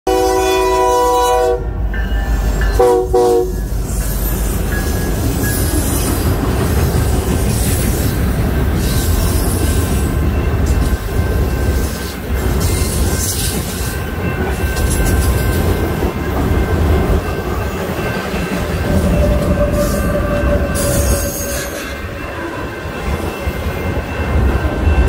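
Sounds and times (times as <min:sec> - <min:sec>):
locomotive air horn: 0:00.1 - 0:01.8, 0:02.7 - 0:03.6, 0:19.2 - 0:22.0
train rolling past: 0:00.1 - 0:25.0.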